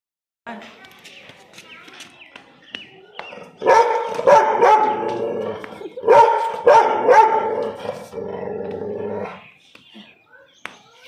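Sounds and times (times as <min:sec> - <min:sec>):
dog barking loudly: 0:03.5 - 0:05.4, 0:06.0 - 0:08.0.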